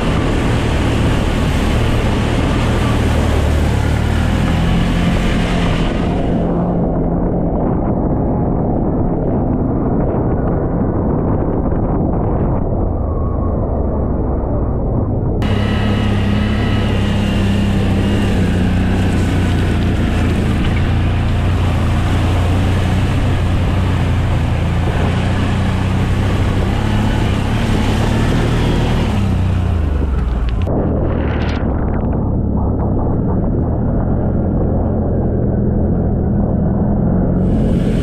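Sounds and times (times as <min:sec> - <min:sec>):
atv engine running: 0:00.0 - 0:09.8, 0:15.4 - 0:38.0
water splashing from tyres: 0:15.4 - 0:30.7.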